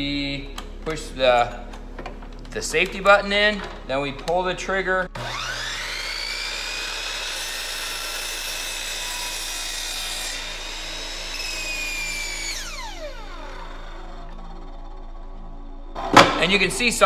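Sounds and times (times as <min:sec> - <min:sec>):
miter saw cutting wood: 0:05.1 - 0:17.0.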